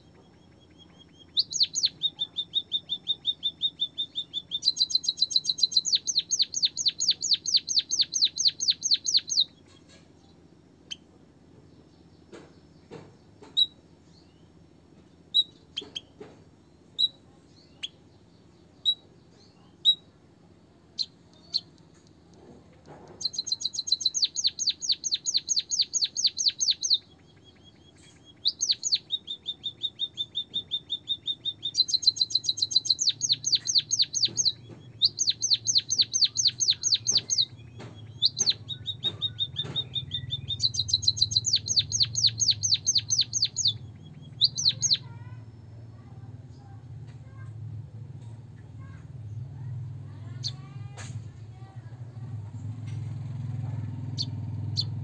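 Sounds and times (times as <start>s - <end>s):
bird chirping and trilling: 0.0s - 11.1s, 15.3s - 20.2s, 20.9s - 22.0s, 23.2s - 47.4s, 54.0s - 55.0s.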